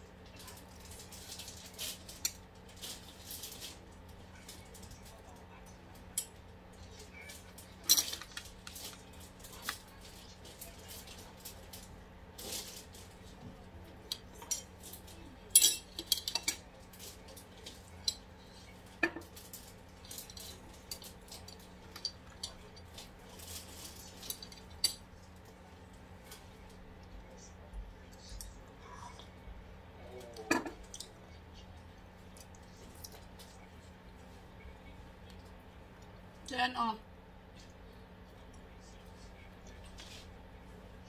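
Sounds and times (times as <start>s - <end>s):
cutlery and dishes clinking: 7.8s - 8.4s, 15.5s - 16.6s, 30.5s - 31.1s.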